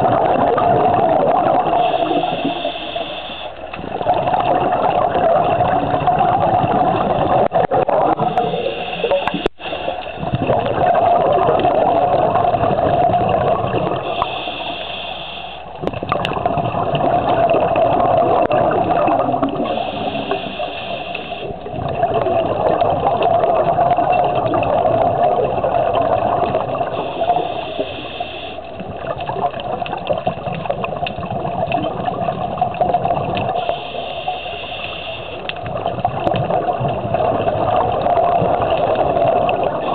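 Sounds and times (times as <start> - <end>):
scuba breathing bubbles: 0.0 - 39.9
regulator inhale hiss: 1.7 - 3.6, 8.3 - 10.2, 14.0 - 15.8, 19.6 - 21.6, 27.0 - 28.8, 33.6 - 35.6.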